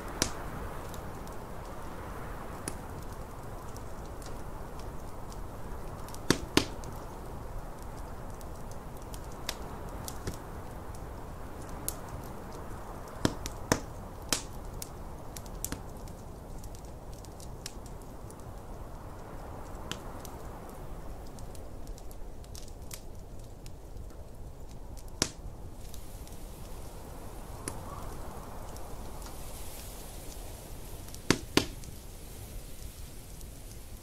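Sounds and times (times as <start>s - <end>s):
sharp pops from fire: 0.0s - 34.0s
wood fire crackling: 0.0s - 34.0s
snowstorm wind rushing: 25.7s - 34.0s.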